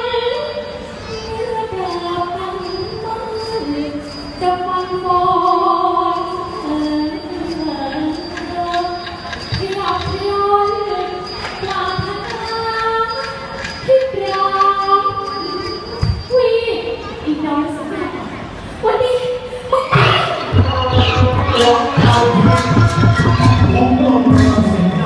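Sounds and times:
light ticks keeping a beat: 0:04.8 - 0:16.0
person singing into a microphone: 0:19.9 - 0:25.0.

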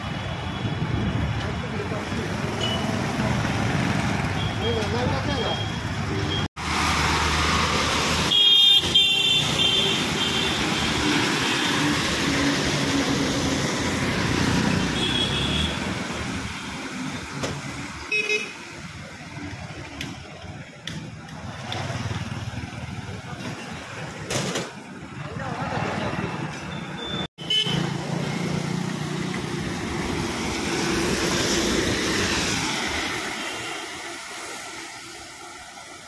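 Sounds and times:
road traffic: 0:00.0 - 0:36.0
motorcycles: 0:00.8 - 0:17.8, 0:18.4 - 0:34.5
vehicle horns tooting: 0:02.6 - 0:03.0, 0:08.2 - 0:11.8, 0:14.7 - 0:15.8, 0:26.7 - 0:27.9.

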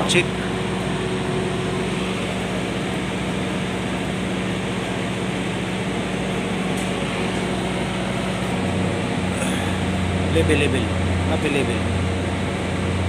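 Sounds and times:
machine hum: 0:00.0 - 0:13.0.

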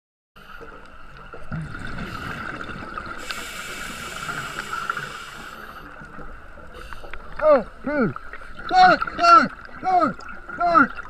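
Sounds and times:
diver breathing through regulator: 0:02.0 - 0:05.9.

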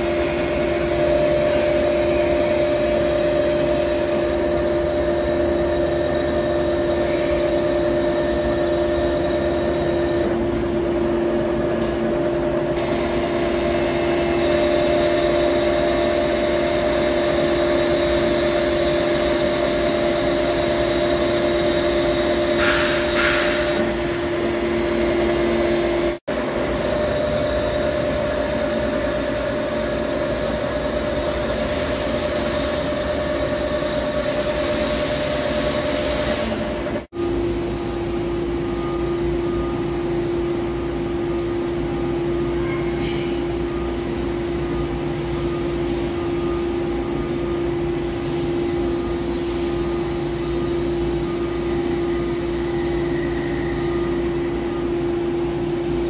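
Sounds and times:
lathe machine hum: 0:00.0 - 0:42.5, 0:43.4 - 0:56.0.

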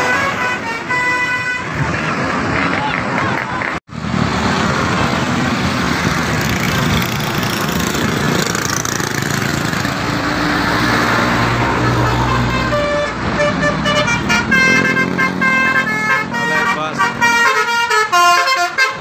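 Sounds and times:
multi-tone bus horn melody: 0:00.0 - 0:01.9, 0:11.4 - 0:19.0
bus engine passing: 0:00.0 - 0:19.0.

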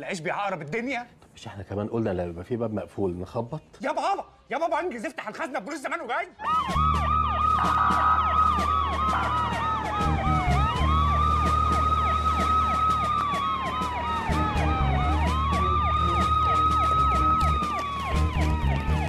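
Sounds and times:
police siren slow wail: 0:06.4 - 0:19.0
siren yelping fast sweeps: 0:06.4 - 0:19.0.

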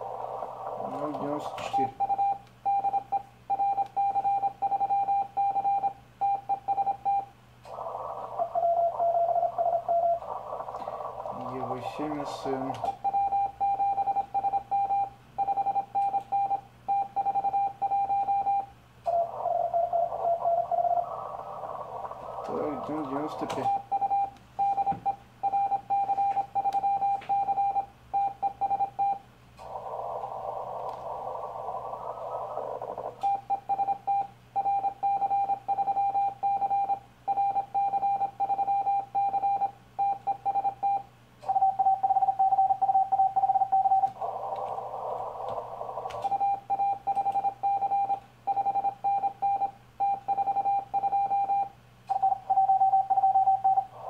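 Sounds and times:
radio receiver hiss: 0:00.0 - 0:02.2, 0:07.6 - 0:13.0, 0:19.1 - 0:23.8, 0:29.5 - 0:33.5, 0:43.8 - 0:46.6
morse code beeps: 0:00.8 - 0:07.3, 0:12.8 - 0:21.0, 0:22.5 - 0:29.2, 0:33.2 - 0:44.2, 0:46.2 - 0:53.9.

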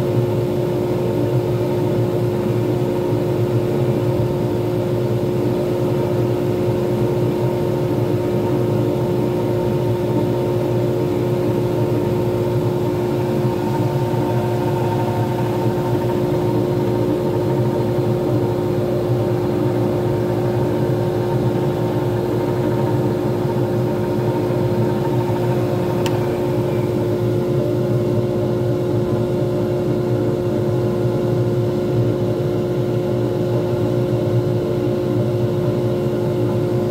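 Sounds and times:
wood lathe motor humming: 0:09.6 - 0:27.6.

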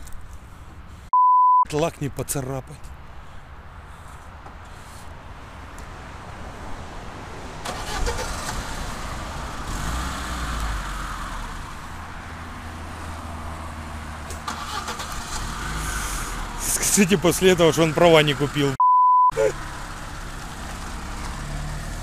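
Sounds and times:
car engine revving: 0:07.7 - 0:11.9, 0:14.5 - 0:16.7.

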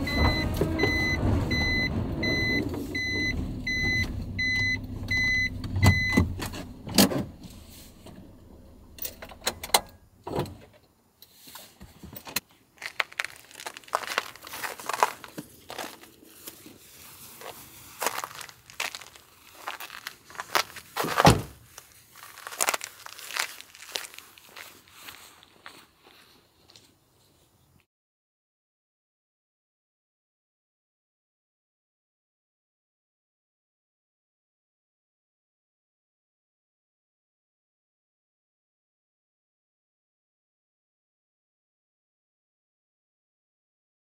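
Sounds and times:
warning beeps: 0:00.0 - 0:06.2
truck engine running: 0:00.0 - 0:09.4.

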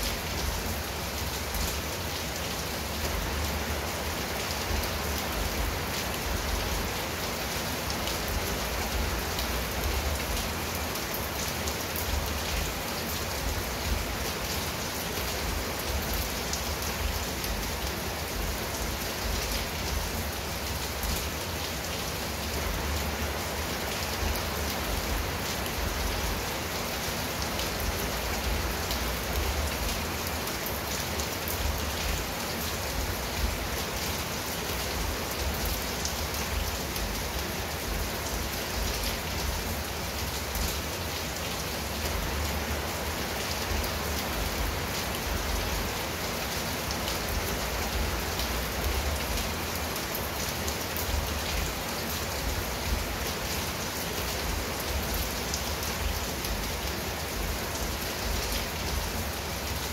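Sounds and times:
rain on a tile roof: 0:00.0 - 0:59.9.

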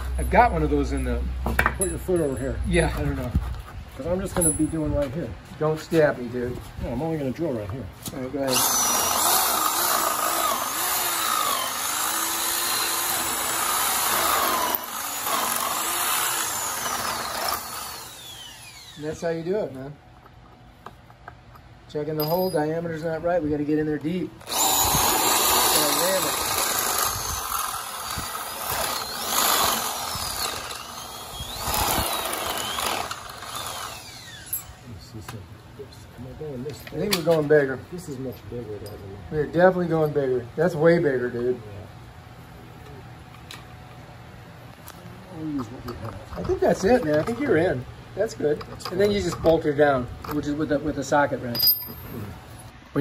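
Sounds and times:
electric drill boring into steel: 0:08.5 - 0:19.1, 0:24.4 - 0:34.8.

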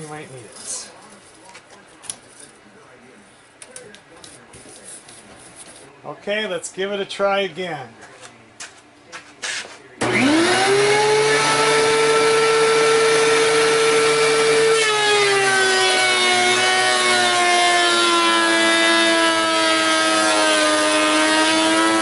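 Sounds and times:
planer cutting a board: 0:10.0 - 0:22.0
thickness planer motor whining: 0:10.0 - 0:22.0.

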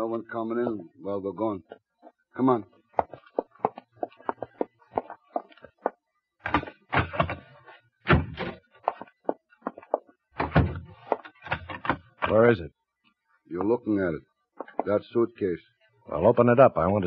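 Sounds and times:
door opening and shutting: 0:10.4 - 0:12.4.

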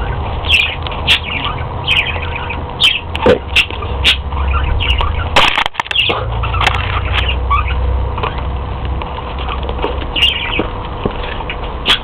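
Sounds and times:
budgerigar chirping and clicking: 0:00.0 - 0:12.0.

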